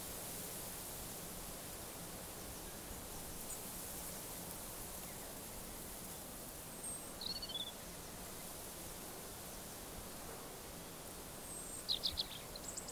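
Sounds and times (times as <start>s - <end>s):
soft outdoor hiss: 0.0s - 12.9s.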